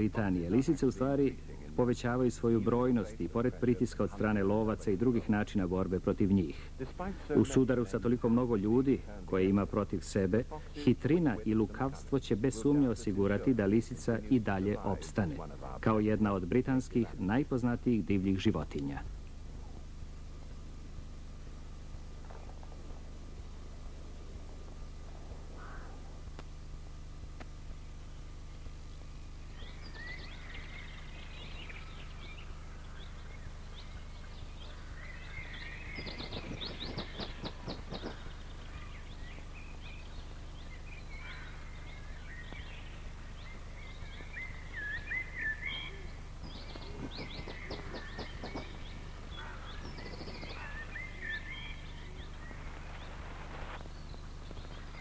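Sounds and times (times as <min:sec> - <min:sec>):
birds chirping and singing: 0:00.0 - 0:17.7, 0:28.0 - 0:55.0
low hum: 0:00.0 - 0:55.0
rapid rattling bird chatter: 0:22.1 - 0:55.0.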